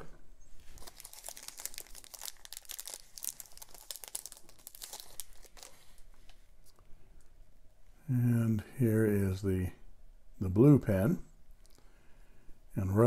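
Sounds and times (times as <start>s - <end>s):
plastic sleeve crinkling: 0.6s - 6.8s.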